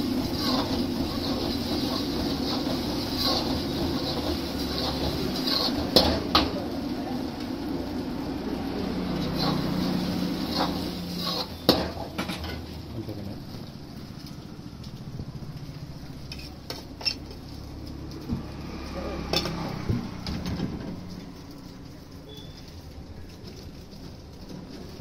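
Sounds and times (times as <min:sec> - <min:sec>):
ladle scraping wok: 0:00.0 - 0:12.9, 0:16.0 - 0:22.8
low frying sizzle: 0:00.0 - 0:25.0.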